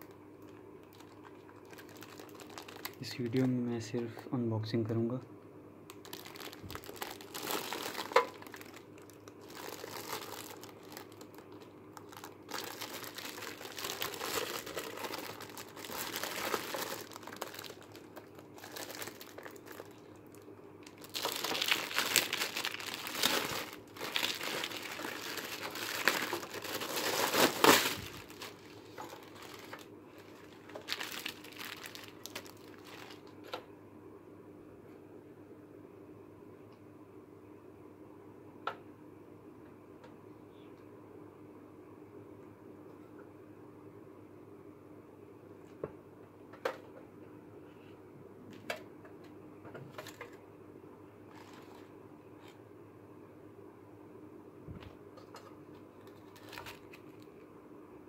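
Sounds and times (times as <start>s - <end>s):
plastic packaging crinkling: 0.0s - 3.6s, 5.9s - 33.6s, 51.3s - 51.9s, 56.0s - 57.3s.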